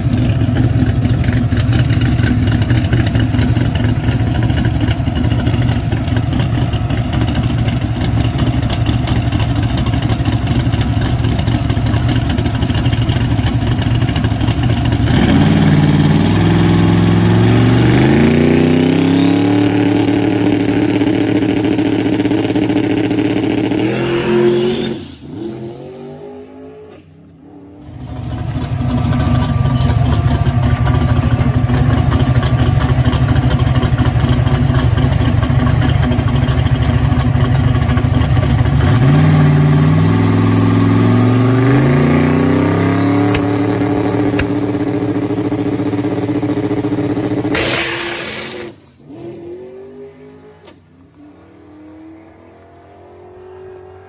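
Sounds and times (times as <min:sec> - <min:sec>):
engine revving: 0:15.0 - 0:30.6, 0:38.6 - 0:54.0
heavy engine idle: 0:28.1 - 0:38.8.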